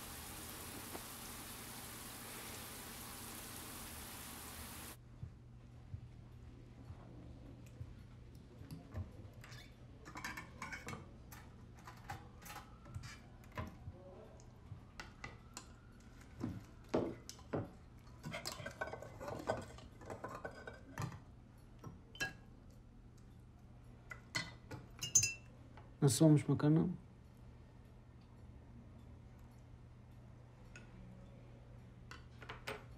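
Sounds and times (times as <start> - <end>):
low steady hum: 0.0 - 6.8
cutlery clinking on plates: 9.4 - 12.1, 18.0 - 22.5, 24.1 - 25.5.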